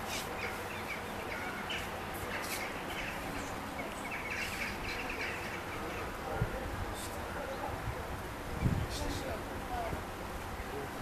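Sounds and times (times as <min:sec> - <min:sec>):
small birds chirping: 0:00.0 - 0:07.7, 0:10.4 - 0:11.0
outdoor background noise: 0:00.0 - 0:11.0.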